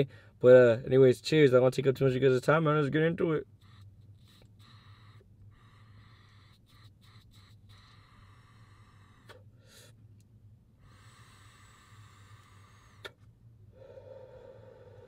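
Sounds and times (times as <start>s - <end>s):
air drawn through straw hiss: 4.3s - 10.0s, 10.8s - 15.0s
breathy exhale: 7.9s - 10.0s, 10.8s - 15.0s.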